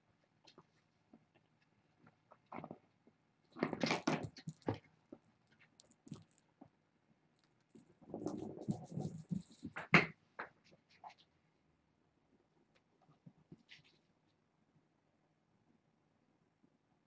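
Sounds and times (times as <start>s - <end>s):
kittens rustling and scratching: 0.4s - 11.4s, 12.6s - 14.4s.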